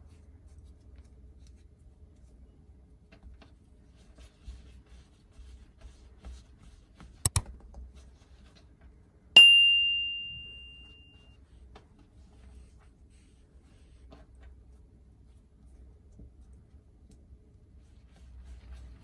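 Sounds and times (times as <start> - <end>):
bright bell-like ding: 9.4 - 11.2.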